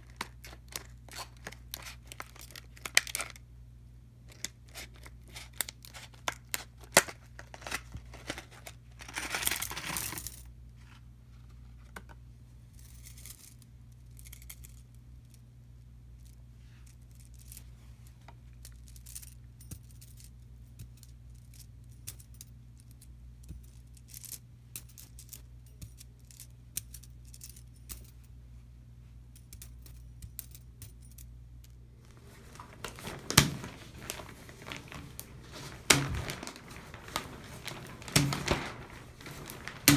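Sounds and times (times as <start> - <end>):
plastic packaging crinkling: 0.0 - 3.4, 4.3 - 10.2, 32.0 - 39.9.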